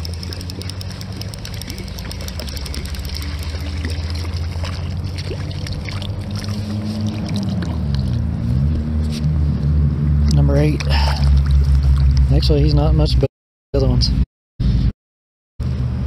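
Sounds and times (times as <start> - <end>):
fishing reel clicking: 0.0 - 4.4
fish splashing: 0.0 - 8.3, 10.8 - 12.2
steady low hum: 0.0 - 8.6.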